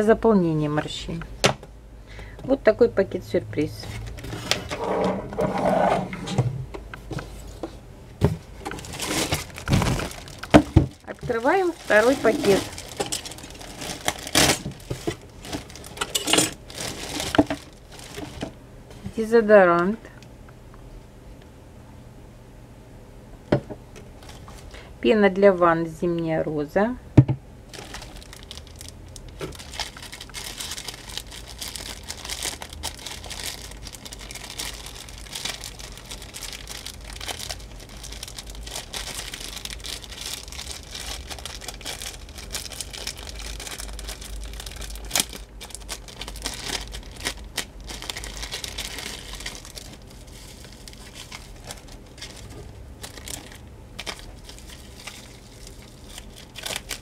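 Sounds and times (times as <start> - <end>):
plastic wrapping crinkling: 8.5 - 18.6, 24.2 - 24.7, 27.7 - 57.0.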